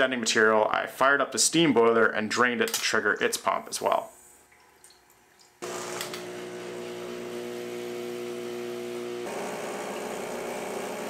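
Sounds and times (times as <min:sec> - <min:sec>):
espresso machine pump buzzing: 0:05.6 - 0:11.0.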